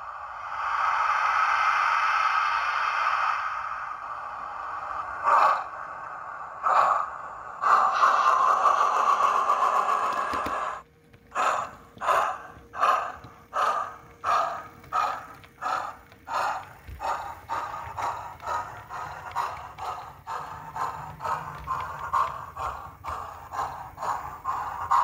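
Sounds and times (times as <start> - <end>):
steam hiss: 0.0 - 25.0
steam locomotive chuffs: 0.0 - 25.0.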